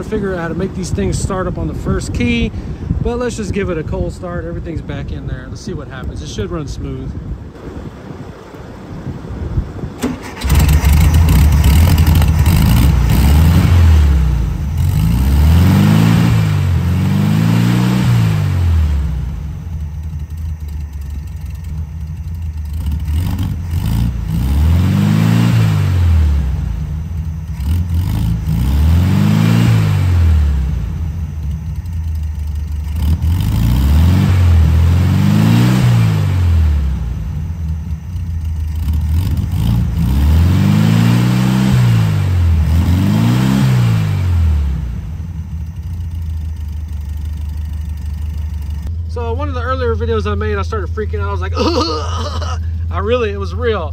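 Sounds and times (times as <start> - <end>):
car engine revving: 7.5 - 49.0.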